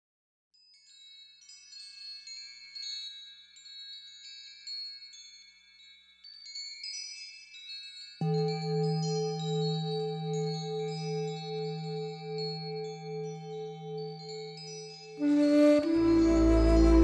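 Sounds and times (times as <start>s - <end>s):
wind chimes tinkling: 0.6s - 17.0s
low pulsing tone: 15.2s - 17.0s.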